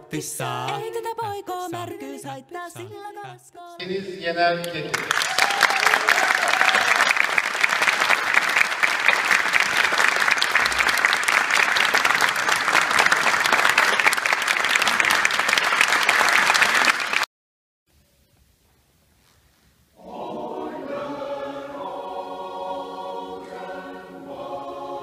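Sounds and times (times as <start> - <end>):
audience applauding: 4.9 - 17.3.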